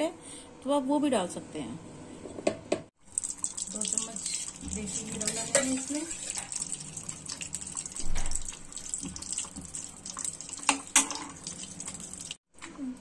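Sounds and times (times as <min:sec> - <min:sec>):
ghee sizzling in a pan: 0:03.0 - 0:12.4.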